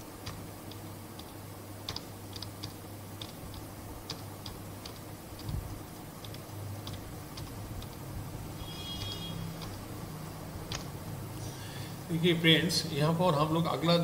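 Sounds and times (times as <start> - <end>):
steady low hum: 0.0 - 14.0
computer controls clicking: 0.2 - 8.0, 8.8 - 9.8, 10.7 - 11.0.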